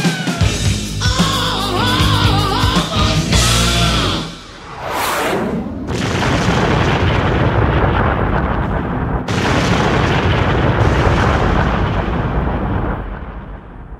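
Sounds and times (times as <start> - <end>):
rock song: 0.0 - 4.6
rumbling explosion sound effect: 4.3 - 13.9.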